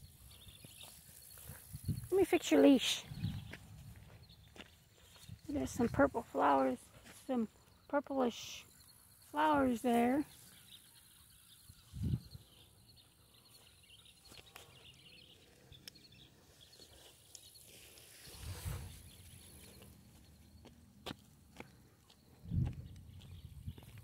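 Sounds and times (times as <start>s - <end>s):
faint bird chirps: 0.0s - 5.4s, 7.3s - 20.6s.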